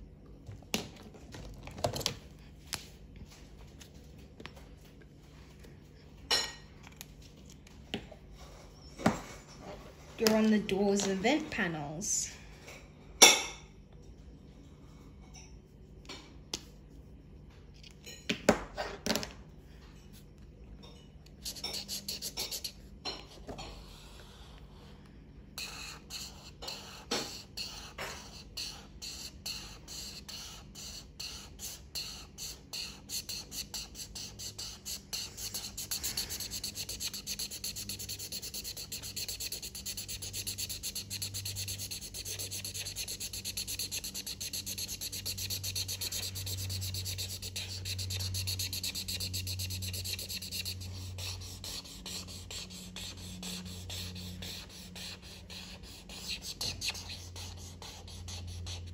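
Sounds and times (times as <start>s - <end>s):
marker scratching on paper: 21.4s - 22.8s, 25.6s - 58.9s.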